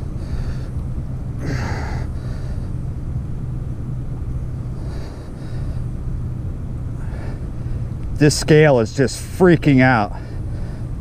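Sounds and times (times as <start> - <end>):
distant engine drone: 0.0 - 11.0.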